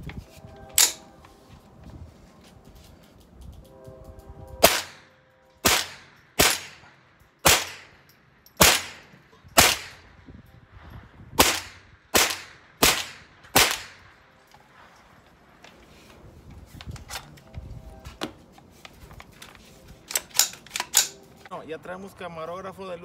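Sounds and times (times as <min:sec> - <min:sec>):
rifle shots echoing: 0:04.6 - 0:10.1, 0:11.4 - 0:14.4.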